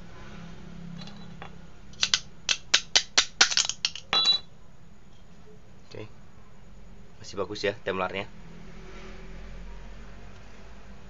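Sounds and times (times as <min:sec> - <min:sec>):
sharp metallic clinks: 0:01.0 - 0:04.5.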